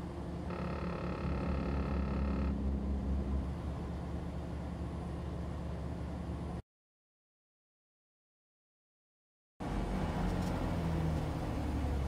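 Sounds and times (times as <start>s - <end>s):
truck engine drone: 0.0s - 6.6s, 9.6s - 12.0s
dashboard warning tone: 0.5s - 2.9s.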